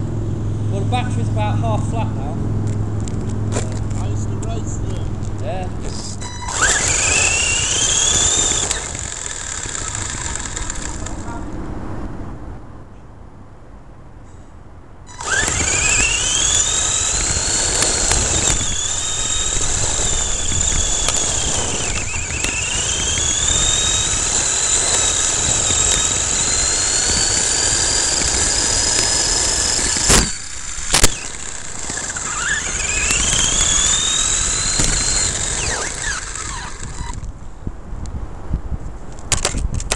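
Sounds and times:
tyres rumbling on gravel: 0:00.8 - 0:11.6, 0:15.1 - 0:37.1
rc truck motor whining: 0:03.0 - 0:11.5, 0:15.1 - 0:37.3.

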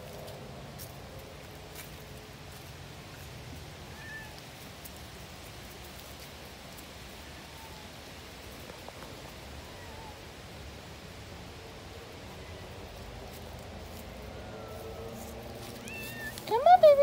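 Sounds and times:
footsteps on dry leaves: 0:00.0 - 0:09.6, 0:12.0 - 0:17.0
background hiss: 0:00.0 - 0:17.0.

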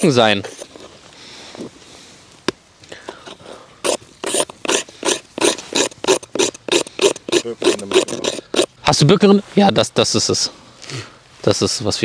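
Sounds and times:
blade rasping on wood: 0:03.8 - 0:08.7.

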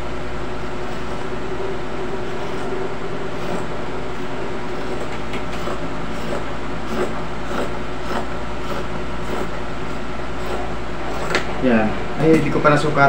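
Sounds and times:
steady mechanical hum: 0:00.0 - 0:13.0
scissors cutting cloth: 0:04.8 - 0:09.5.

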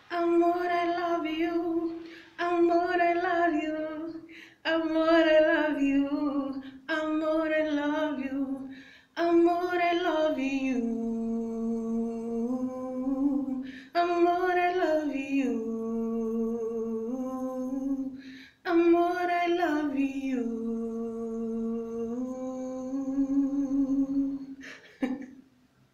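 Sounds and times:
woman singing unaccompanied: 0:00.0 - 0:25.2
woman breathing: 0:02.0 - 0:02.4, 0:04.2 - 0:04.6, 0:08.7 - 0:09.2, 0:13.6 - 0:14.0, 0:18.2 - 0:18.6, 0:24.5 - 0:25.0.

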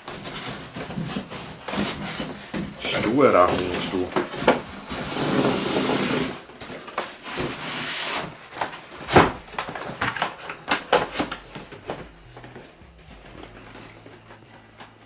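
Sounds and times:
cardboard box rubbing and sliding: 0:04.7 - 0:06.5, 0:07.1 - 0:08.4.

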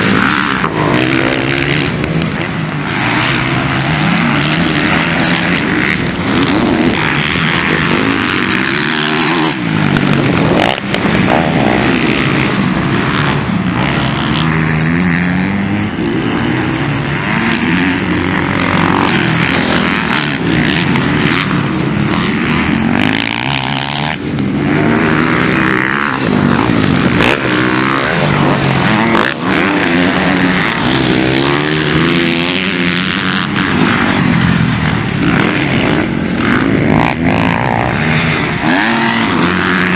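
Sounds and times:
motocross bike engines revving: 0:00.0 - 0:39.9.

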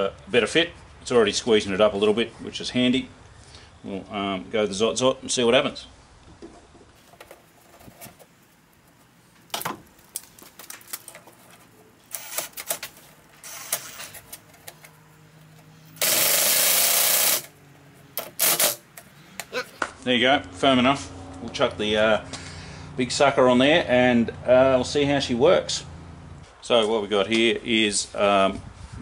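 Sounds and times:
cordless drill running: 0:12.1 - 0:12.6, 0:13.4 - 0:14.0, 0:16.0 - 0:17.6, 0:18.2 - 0:18.8.

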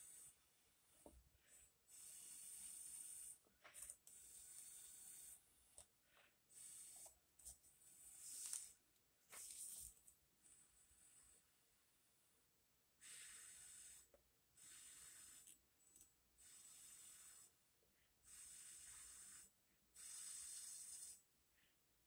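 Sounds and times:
soft breathing: 0:00.0 - 0:11.9.

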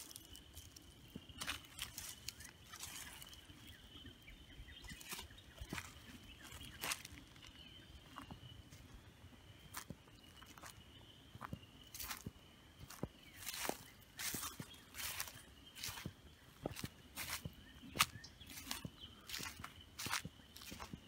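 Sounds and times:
footsteps crunching dry leaves: 0:00.0 - 0:09.0, 0:09.6 - 0:21.0.

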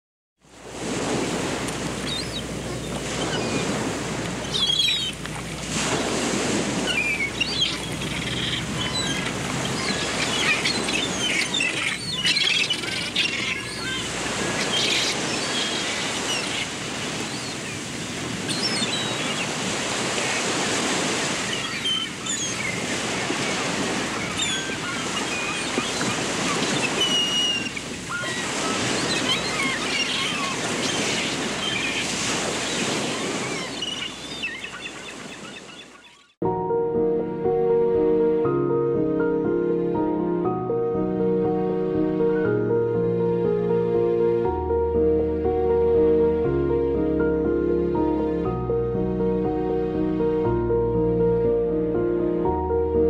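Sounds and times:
waves washing onto beach: 0:00.4 - 0:36.0
birds chirping: 0:02.0 - 0:05.2, 0:06.8 - 0:36.4.

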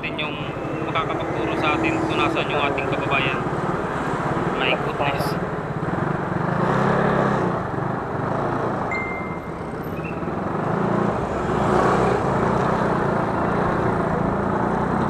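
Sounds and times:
wind and road noise: 0:00.0 - 0:15.0
short high beep: 0:08.9 - 0:10.2.

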